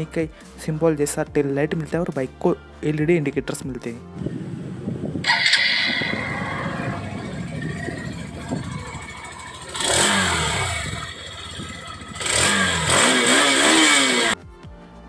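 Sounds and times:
motorcycle engine revving: 4.3 - 14.4
motorcycle engine idling: 4.4 - 14.4.

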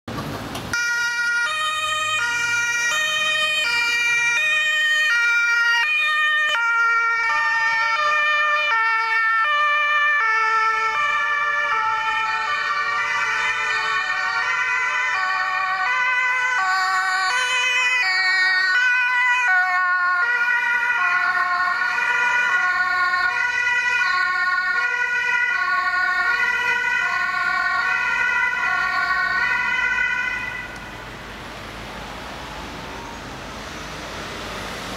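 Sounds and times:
second two-tone siren: 0.7 - 31.0
two-tone emergency siren: 0.7 - 31.1, 31.8 - 34.9.

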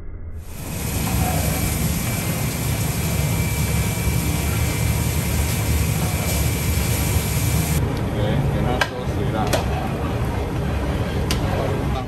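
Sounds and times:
low rumbling roar: 0.0 - 8.6
faint steady whine: 0.4 - 8.2
even hiss: 0.5 - 7.8.

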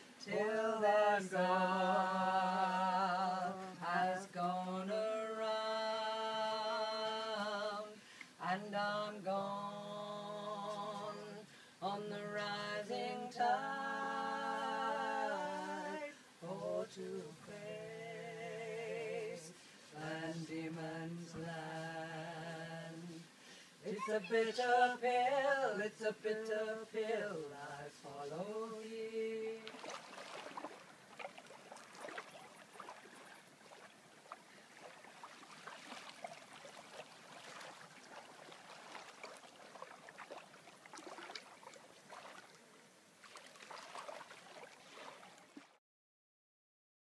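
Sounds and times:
a cappella singing: 0.0 - 30.0.

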